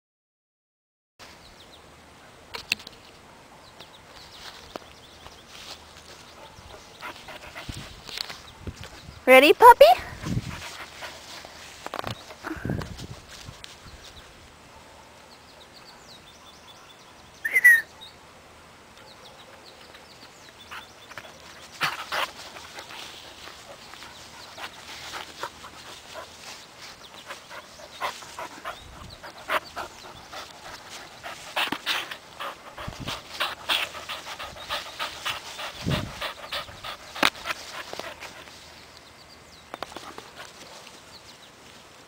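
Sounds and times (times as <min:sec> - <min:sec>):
puppy panting: 0:06.4 - 0:08.1, 0:20.7 - 0:38.7.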